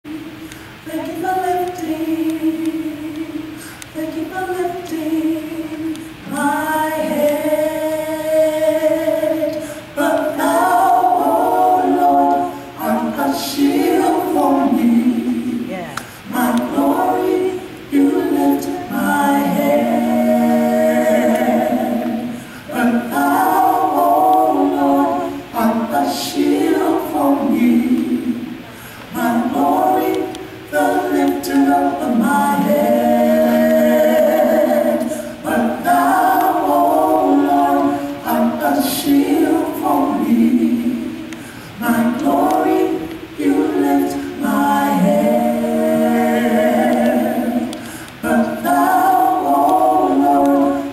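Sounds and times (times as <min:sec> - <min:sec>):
gospel vocal trio singing: 0:00.0 - 0:50.9.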